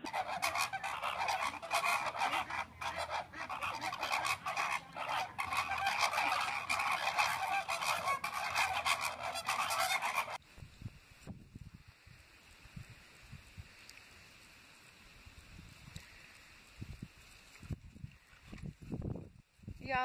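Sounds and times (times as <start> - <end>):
flamingos honking: 0.0 - 10.4.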